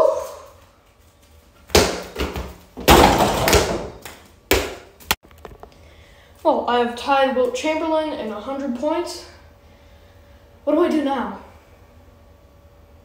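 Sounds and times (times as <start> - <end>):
ball thudding: 1.7 - 4.9
basketball hoop rattling: 1.8 - 4.0.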